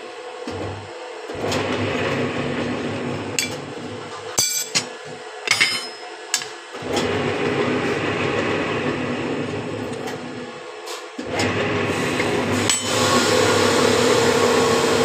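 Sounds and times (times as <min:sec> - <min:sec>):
machine hum: 0:00.2 - 0:15.0
steel bar clanking on metal: 0:03.4 - 0:03.7, 0:04.4 - 0:04.9, 0:05.5 - 0:06.6.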